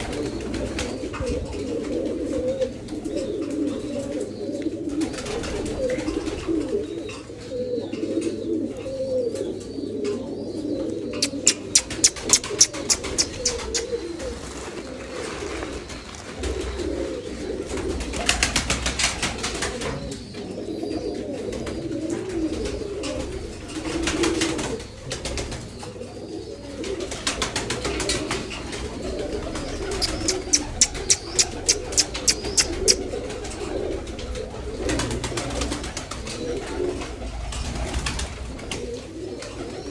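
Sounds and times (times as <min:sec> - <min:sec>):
pigeons cooing: 0:00.0 - 0:39.9
wing claps of pigeons taking off: 0:11.2 - 0:14.4, 0:17.8 - 0:19.9, 0:27.1 - 0:34.2, 0:34.8 - 0:36.4
fluttering wings: 0:11.2 - 0:16.9, 0:27.2 - 0:34.0.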